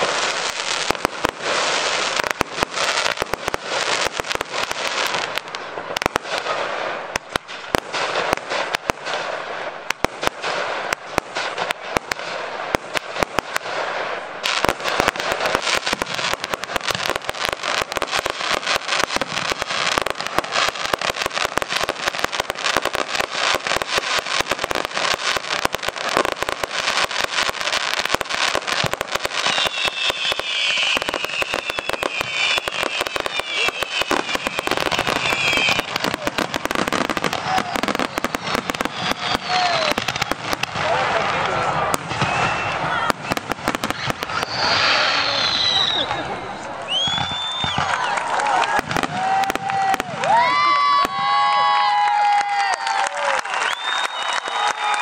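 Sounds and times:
sharp fireworks bangs: 0:00.0 - 0:46.3, 0:47.0 - 0:48.0, 0:48.7 - 0:55.0
fireworks crackling: 0:00.0 - 0:55.0
sliding fireworks whistles: 0:14.4 - 0:40.8, 0:41.4 - 0:55.0.

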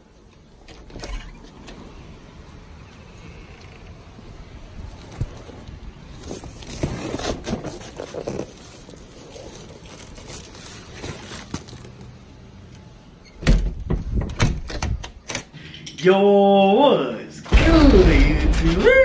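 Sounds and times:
cardboard box handling noise: 0:04.8 - 0:12.1
loud low thumps: 0:17.5 - 0:19.0.

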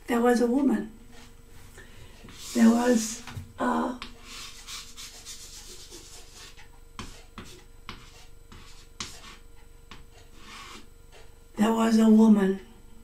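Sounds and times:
chalk scratching on chalkboard: 0:02.3 - 0:03.2, 0:04.0 - 0:11.2
chalk ticking on board: 0:04.0 - 0:11.3.

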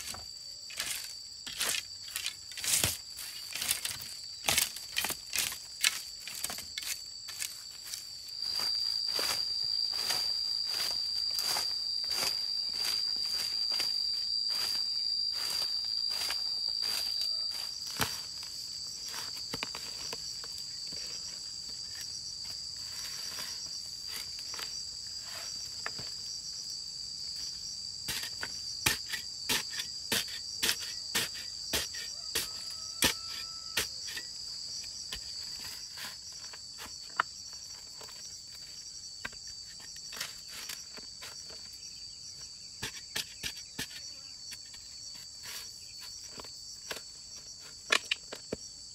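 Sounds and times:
metal spade chopping into earth: 0:00.0 - 0:07.5, 0:28.1 - 0:34.3
insects chirring: 0:00.0 - 0:48.9.

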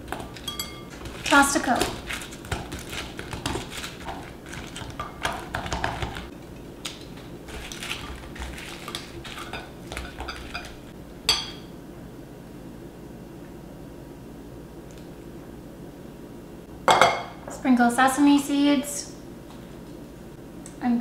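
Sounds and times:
tongs clinking on glass bowl: 0:00.4 - 0:01.0, 0:09.4 - 0:11.7.

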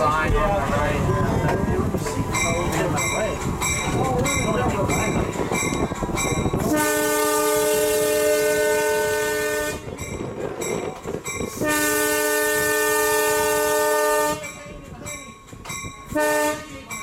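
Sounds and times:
locomotive air horn blasts: 0:06.7 - 0:09.9, 0:11.6 - 0:14.4, 0:16.1 - 0:16.7.

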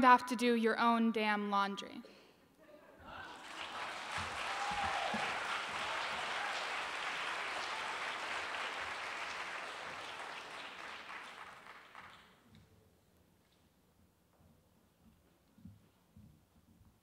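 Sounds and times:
audience applauding: 0:03.1 - 0:12.4.

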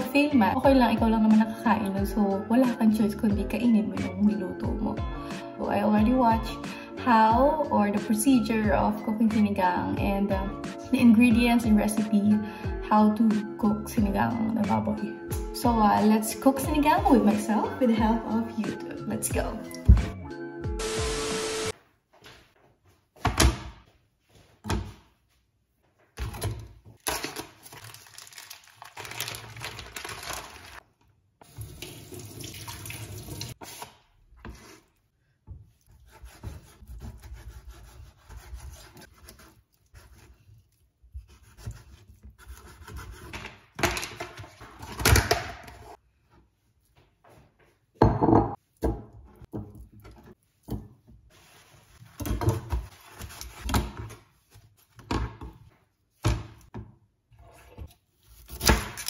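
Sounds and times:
knife scraping: 0:33.6 - 0:35.0, 0:35.8 - 0:43.6
knife slicing meat on board: 0:35.8 - 0:40.4.

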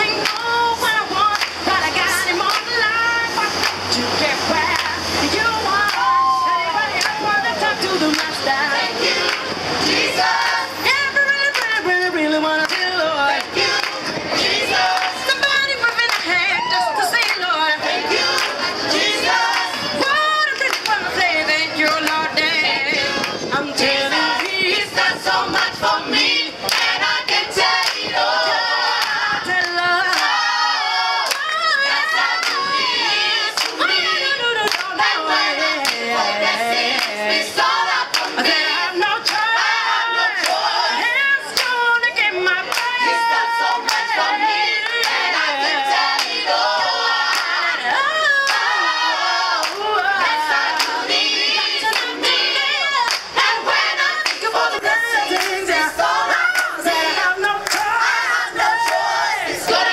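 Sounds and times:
woman singing into microphone: 0:00.0 - 0:09.1, 0:10.3 - 0:26.6, 0:27.4 - 0:50.8, 0:51.5 - 0:59.9
choir singing a cappella: 0:00.0 - 0:59.9
hand clapping: 0:00.2 - 0:00.5, 0:01.3 - 0:01.6, 0:08.1 - 0:08.4, 0:11.5 - 0:11.8, 0:20.6 - 0:21.0, 0:38.1 - 0:38.4, 0:41.6 - 0:41.8, 0:55.4 - 0:55.6, 0:56.5 - 0:56.7, 0:57.4 - 0:58.0.

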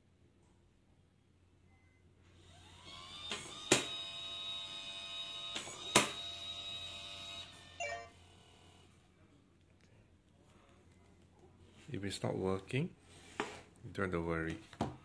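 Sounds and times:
lock motor whining: 0:02.4 - 0:07.9.

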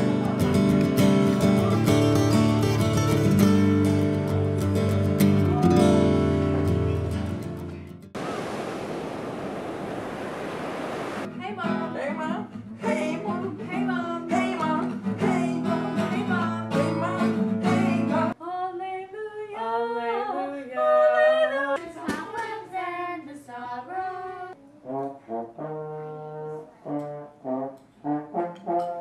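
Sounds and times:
acoustic guitar strumming: 0:00.0 - 0:08.1
woman singing: 0:11.3 - 0:24.6
girl singing: 0:11.6 - 0:24.9.

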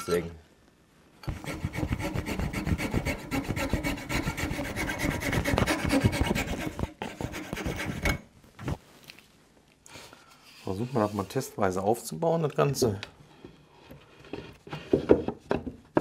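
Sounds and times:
fretsaw rasping through wood: 0:01.3 - 0:08.1.

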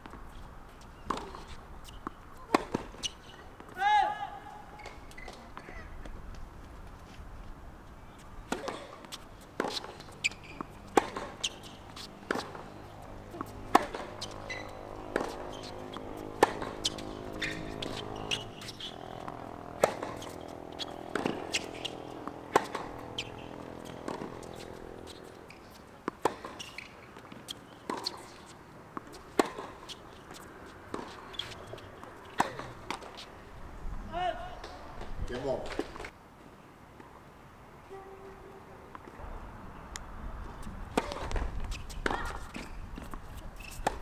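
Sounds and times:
tennis ball bouncing: 0:00.9 - 0:03.8, 0:08.5 - 0:33.3, 0:40.9 - 0:44.0
rackets striking tennis ball: 0:01.0 - 0:03.8, 0:08.5 - 0:33.3, 0:40.9 - 0:44.0.

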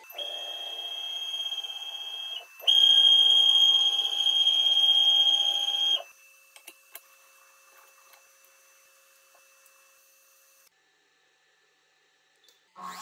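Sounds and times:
stepper motor whine: 0:00.0 - 0:06.4.

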